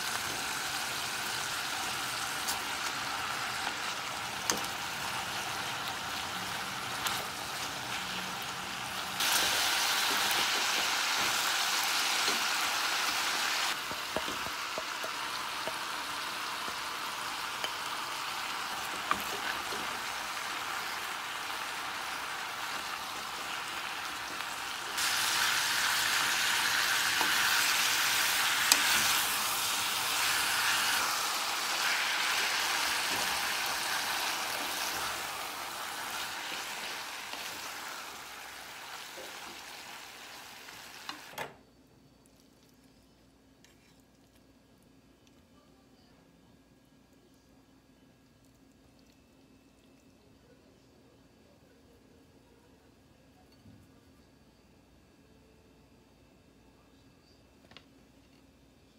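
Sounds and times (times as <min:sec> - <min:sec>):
food sizzling in a saucepan: 0:00.0 - 0:41.4.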